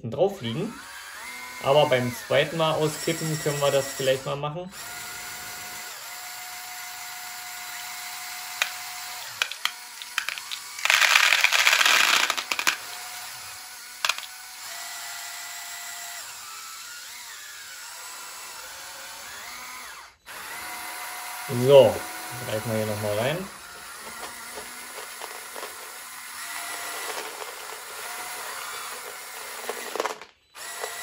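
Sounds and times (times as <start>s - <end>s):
small electric motors whining: 0.4s - 31.0s
marbles rattling in plastic bucket: 8.6s - 13.0s, 14.0s - 14.4s, 23.8s - 31.0s
plastic clicks: 8.6s - 13.0s, 14.0s - 14.4s, 23.8s - 26.0s.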